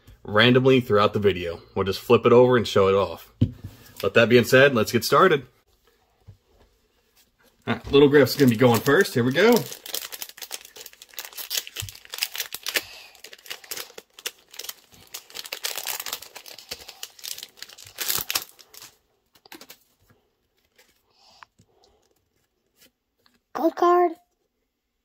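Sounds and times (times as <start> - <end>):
foil wrapper crinkling: 8.0 - 22.6.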